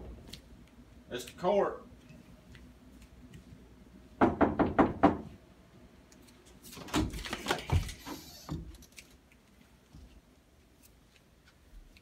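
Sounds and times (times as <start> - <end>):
knocking on a door: 4.2 - 5.3.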